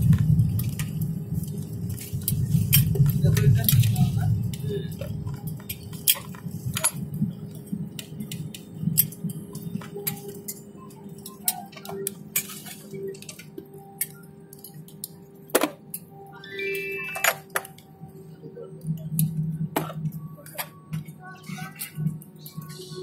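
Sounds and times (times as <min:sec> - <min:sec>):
low cabin hum: 0:00.0 - 0:23.0
rising beeps: 0:16.1 - 0:18.1
faint tone: 0:16.2 - 0:17.7.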